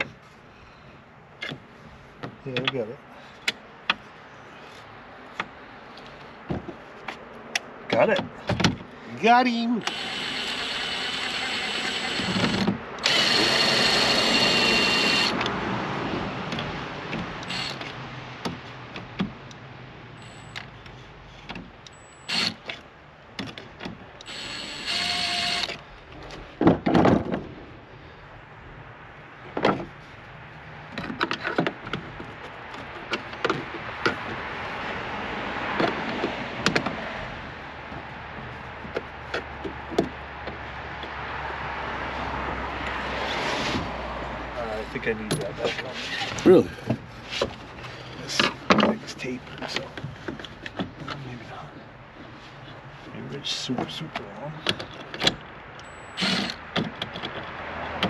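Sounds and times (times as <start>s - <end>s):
knocks and clicks of parts: 6.4s - 8.9s, 16.5s - 19.6s, 20.5s - 24.3s, 29.5s - 29.9s, 35.7s - 37.0s, 38.8s - 41.2s, 53.8s - 58.0s
cordless drill running: 9.8s - 15.4s, 17.4s - 17.8s, 22.3s - 22.5s, 24.3s - 25.7s, 56.2s - 56.6s.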